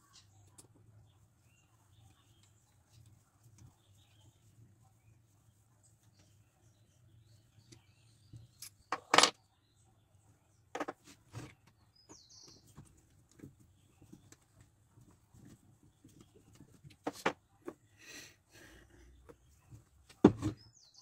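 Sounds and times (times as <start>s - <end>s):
steel parts clinking and knocking: 8.6s - 9.4s.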